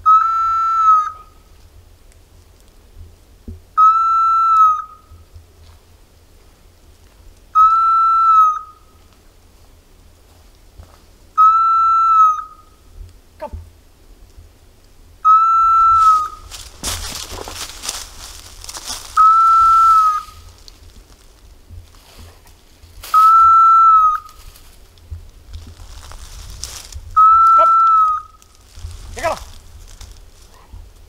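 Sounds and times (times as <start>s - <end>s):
dry brush and leaves crackling: 5.1s - 7.6s, 8.6s - 11.3s, 15.6s - 31.0s.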